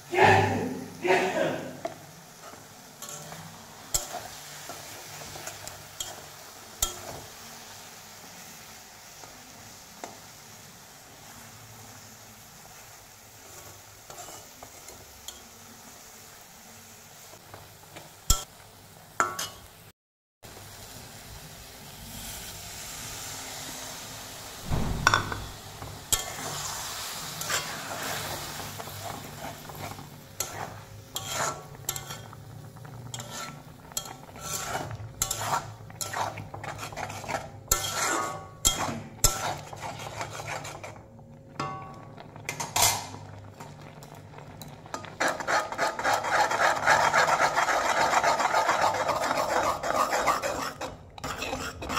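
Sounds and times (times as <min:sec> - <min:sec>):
food sizzling in oil: 0:00.0 - 0:51.9
metal spatula scraping a pan: 0:01.8 - 0:07.4, 0:13.4 - 0:15.5, 0:24.7 - 0:41.0, 0:44.9 - 0:51.9.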